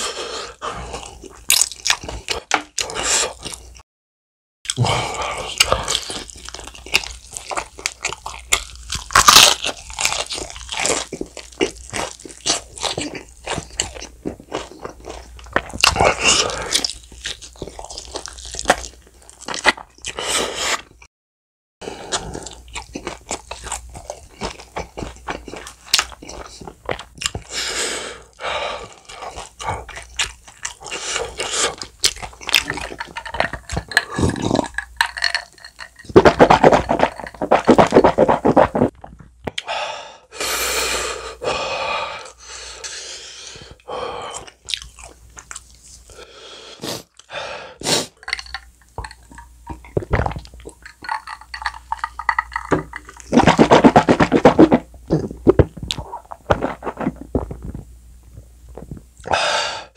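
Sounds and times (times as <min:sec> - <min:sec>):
chewing and crunching fried chicken: 0:00.0 - 0:03.8, 0:04.7 - 0:21.0, 0:21.8 - 0:39.3, 0:42.2 - 0:46.2, 0:47.0 - 0:59.4.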